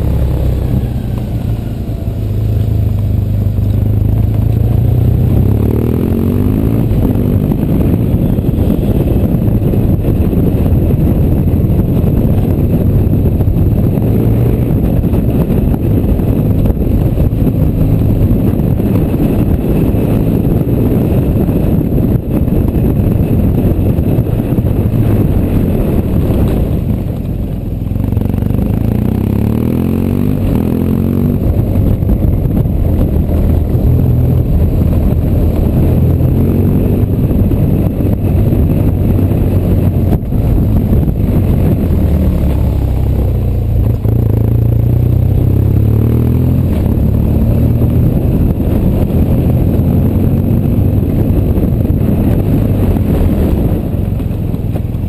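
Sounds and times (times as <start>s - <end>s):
motorcycle engine running: 0.0s - 55.0s
tyres rumbling on cobblestones: 0.0s - 55.0s.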